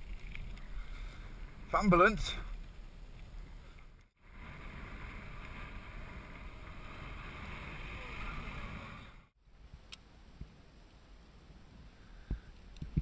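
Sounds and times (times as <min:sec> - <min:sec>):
bike tyre rumble: 0:00.0 - 0:09.4
wind rushing over microphone: 0:03.1 - 0:09.3.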